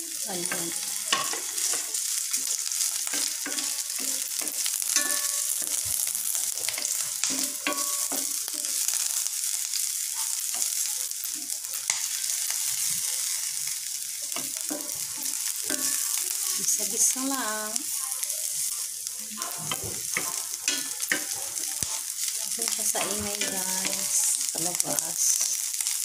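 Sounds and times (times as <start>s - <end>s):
garlic and onion sizzling in oil: 0.0s - 26.0s
spatula scraping and tapping pan: 0.4s - 9.2s, 14.2s - 17.1s, 19.4s - 25.8s.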